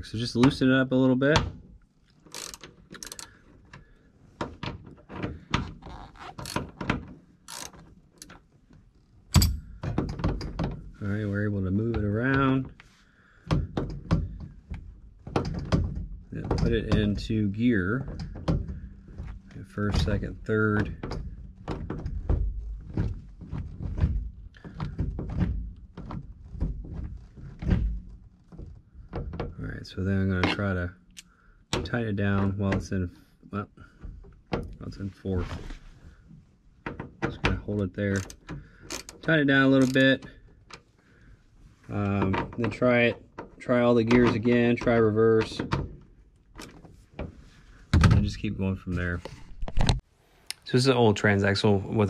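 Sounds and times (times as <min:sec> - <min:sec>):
ratchet wrench clicking: 0:02.3 - 0:03.3.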